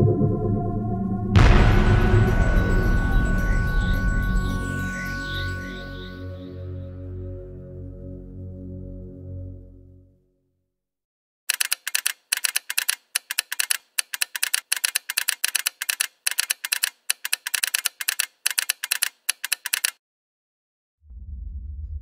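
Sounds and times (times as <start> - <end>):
keyboard typing clicks: 11.5 - 20.0.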